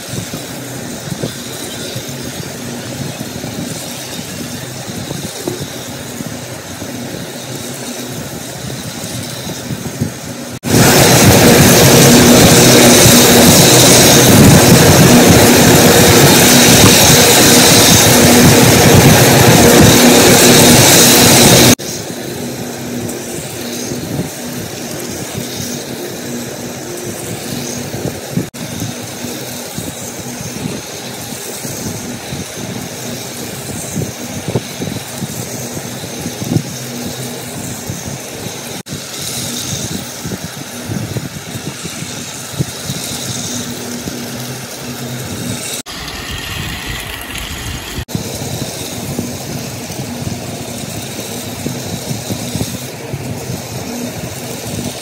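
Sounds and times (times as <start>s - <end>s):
toy train motors whirring: 0.0s - 55.0s.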